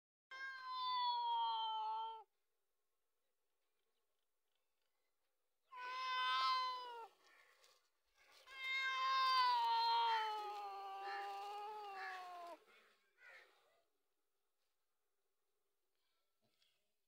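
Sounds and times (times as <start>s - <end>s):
cat yowling: 5.7s - 7.1s, 8.4s - 12.6s.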